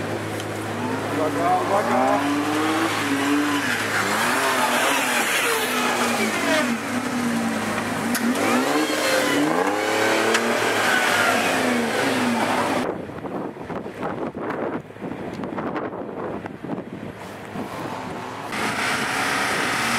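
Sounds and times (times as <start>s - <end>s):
engine revving: 0.0s - 12.9s, 17.9s - 19.9s.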